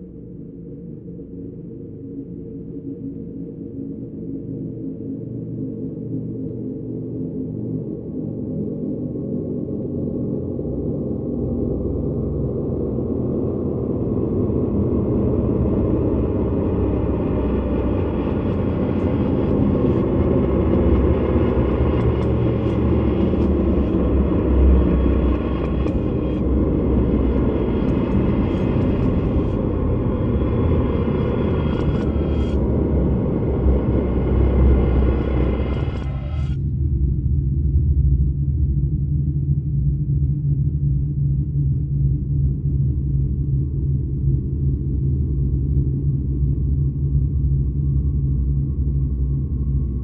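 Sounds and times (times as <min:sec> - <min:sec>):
ambient drone music: 0:00.0 - 0:50.0.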